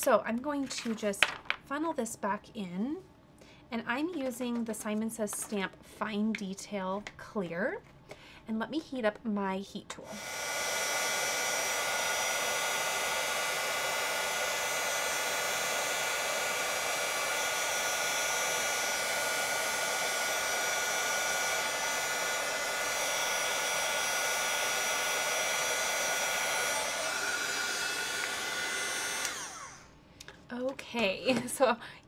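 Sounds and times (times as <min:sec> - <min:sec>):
heat tool blower whine: 0:10.0 - 0:30.0.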